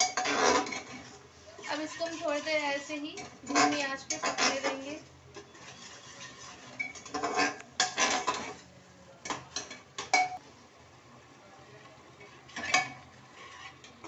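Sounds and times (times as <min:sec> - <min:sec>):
spoon scraping metal pot: 0:00.0 - 0:08.7, 0:12.2 - 0:14.0.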